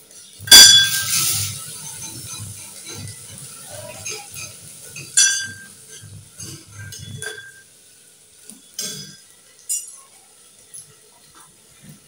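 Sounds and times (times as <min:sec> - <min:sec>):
metal spoon clinking on pot: 0:00.5 - 0:03.4, 0:04.0 - 0:07.6, 0:08.8 - 0:10.1.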